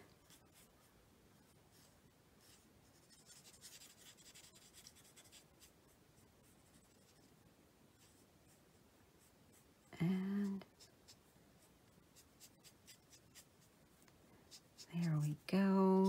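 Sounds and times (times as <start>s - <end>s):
marker scratching on cardstock: 1.8s - 5.7s, 6.4s - 7.3s, 10.4s - 13.7s, 14.5s - 16.0s.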